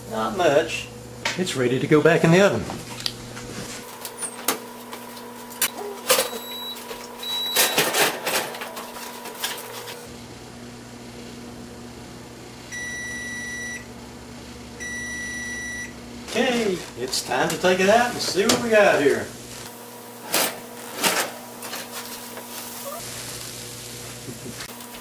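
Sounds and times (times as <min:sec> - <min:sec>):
oven control panel beep: 0:06.2 - 0:07.9, 0:12.7 - 0:13.9, 0:14.8 - 0:16.0.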